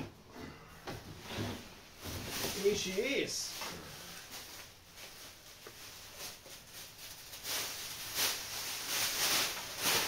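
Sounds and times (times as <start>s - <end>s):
plastic bag rustling: 1.6s - 10.0s.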